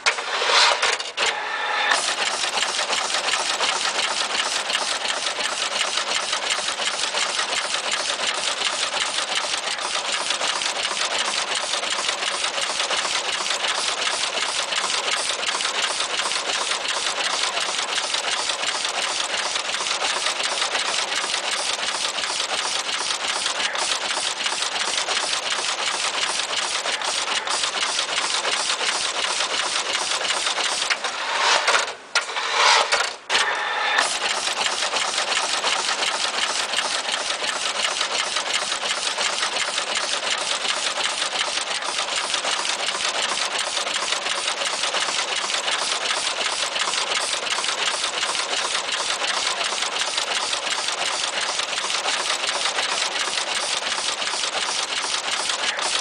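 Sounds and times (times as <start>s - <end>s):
machine clattering rapid clicks: 1.9s - 33.2s, 34.0s - 56.0s.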